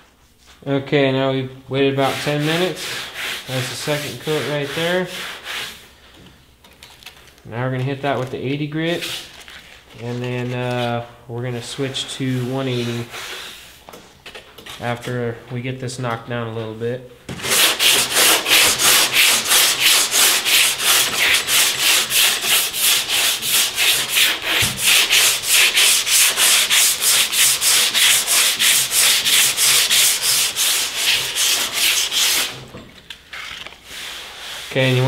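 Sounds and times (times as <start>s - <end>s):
sanding block rasping on filler: 1.9s - 5.8s, 12.2s - 13.8s, 17.4s - 32.6s.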